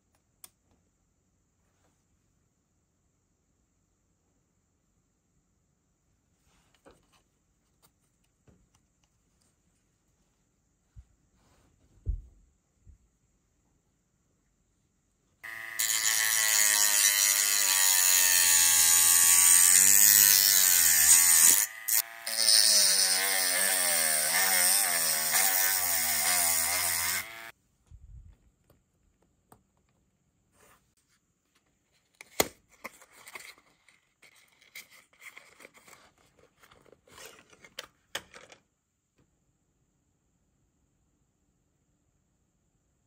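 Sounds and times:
rotary tool sanding plastic: 0:15.4 - 0:27.5.

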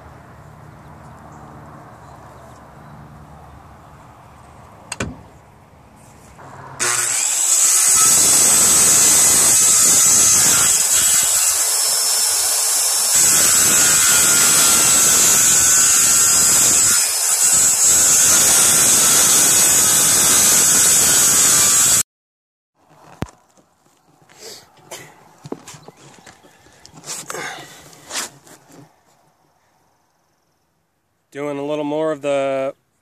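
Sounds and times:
circular saw cutting plywood: 0:06.4 - 0:22.0.

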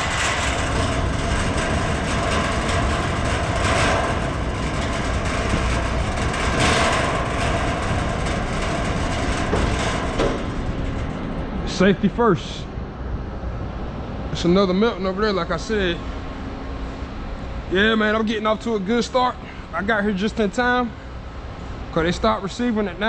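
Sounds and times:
low mechanical rumble: 0:00.0 - 0:23.0.

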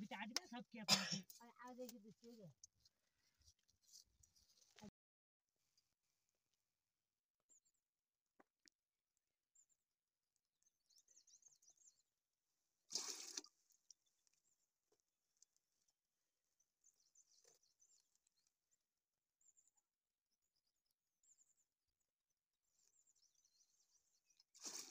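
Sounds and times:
water splash: 0:12.9 - 0:13.6
water dribbling: 0:12.9 - 0:14.0.

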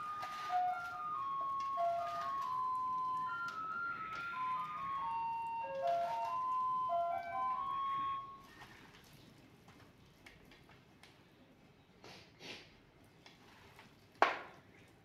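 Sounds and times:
hands kneading fish in batter: 0:00.0 - 0:07.6, 0:08.4 - 0:15.0
electronic jingle: 0:00.0 - 0:08.4.

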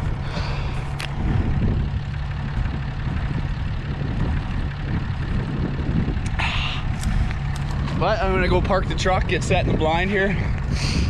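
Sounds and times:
truck engine idling: 0:00.0 - 0:11.0.

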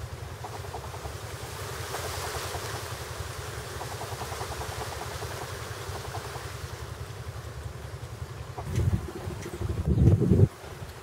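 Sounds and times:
wind buffeting microphone: 0:08.4 - 0:11.0.

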